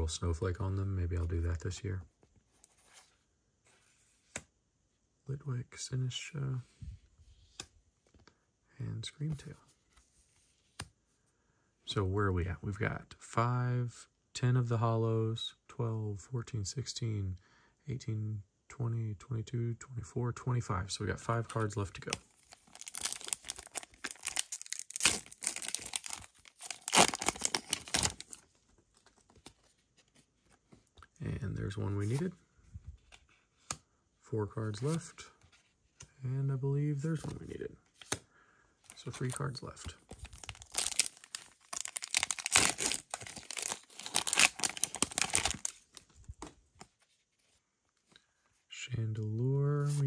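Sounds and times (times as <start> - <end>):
foil wrapper tearing and crinkling: 22.6 - 28.3, 40.2 - 45.7.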